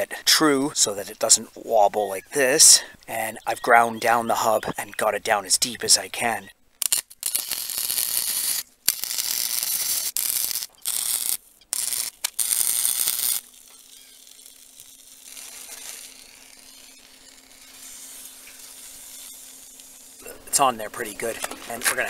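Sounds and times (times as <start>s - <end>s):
faint steady hum: 0.0s - 22.0s
welding arc crackling and hissing: 6.8s - 22.0s.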